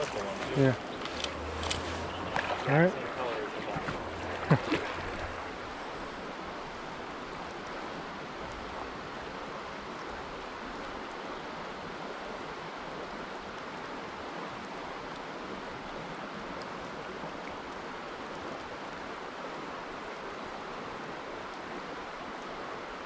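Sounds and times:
creek running over rocks: 0:00.0 - 0:23.0.

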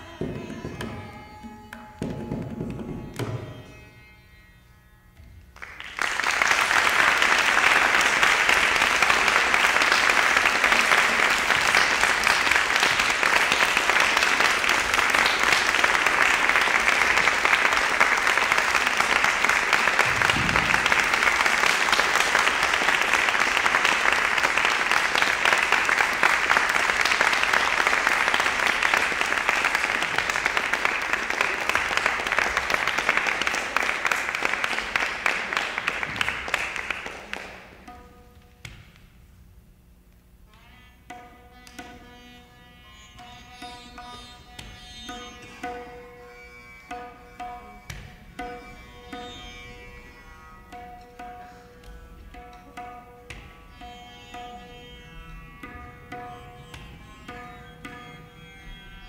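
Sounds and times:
audience applause: 0:05.6 - 0:37.7.

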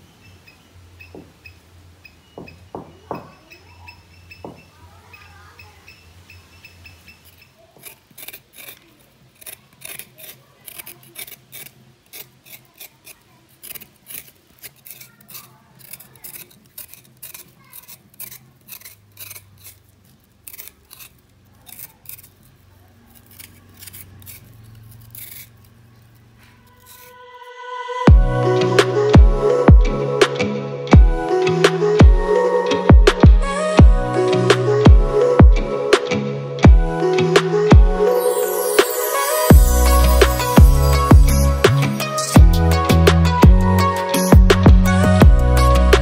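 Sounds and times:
scraping skin off a yam: 0:07.1 - 0:27.4.

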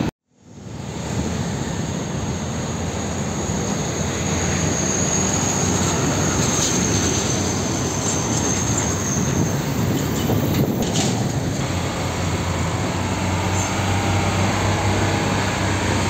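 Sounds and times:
diesel trucks driving past: 0:00.0 - 0:16.0
tyre and traffic noise: 0:00.0 - 0:16.0
thin high whine: 0:11.6 - 0:16.0.

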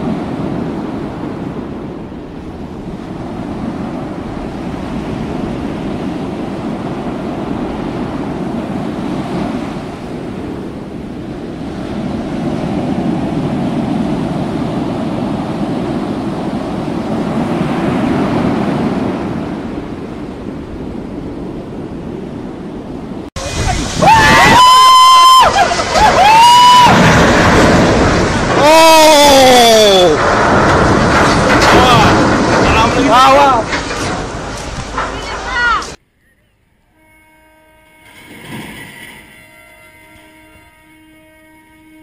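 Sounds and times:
wind buffeting the microphone: 0:00.0 - 0:24.8, 0:25.4 - 0:36.0
waves breaking against a hull: 0:00.0 - 0:36.0.

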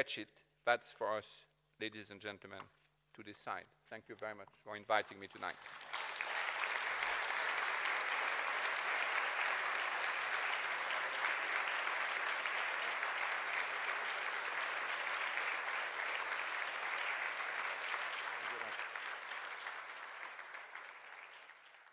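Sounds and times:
audience applauding: 0:05.0 - 0:21.9.

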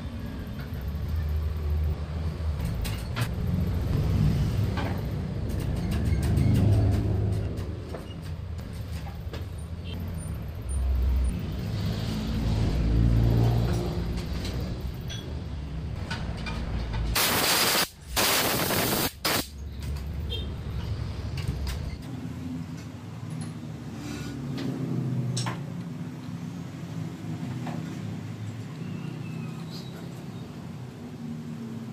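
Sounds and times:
loud hiss: 0:17.2 - 0:19.6.

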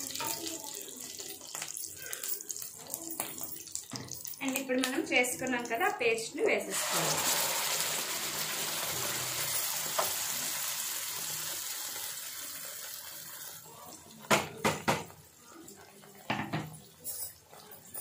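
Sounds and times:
paste sizzling in hot oil: 0:06.7 - 0:14.3.

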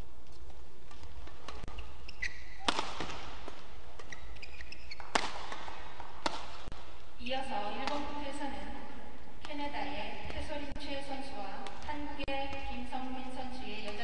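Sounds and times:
rackets hitting shuttlecock: 0:00.4 - 0:07.0, 0:07.8 - 0:08.2, 0:11.6 - 0:11.9, 0:13.8 - 0:14.0.

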